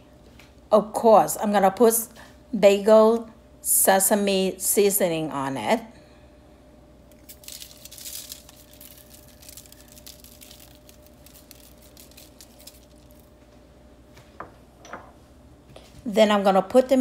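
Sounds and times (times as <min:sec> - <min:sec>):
granules ticking onto foil: 0:07.1 - 0:13.3
seasoning rattling in jar: 0:07.2 - 0:13.3.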